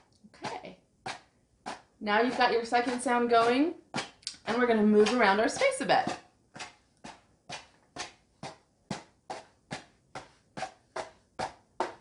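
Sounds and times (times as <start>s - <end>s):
hands scratching cardboard box: 0.4s - 12.0s.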